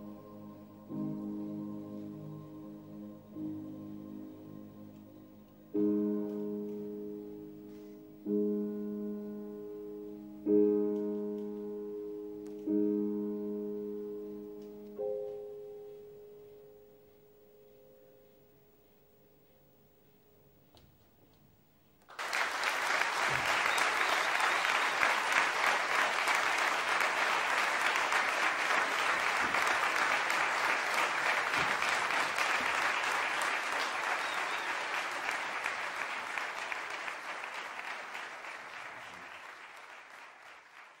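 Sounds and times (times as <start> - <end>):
audience applause: 22.1 - 41.0.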